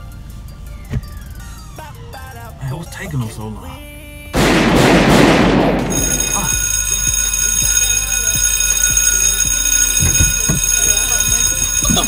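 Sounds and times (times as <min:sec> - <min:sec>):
building alarm: 0:05.9 - 0:12.0.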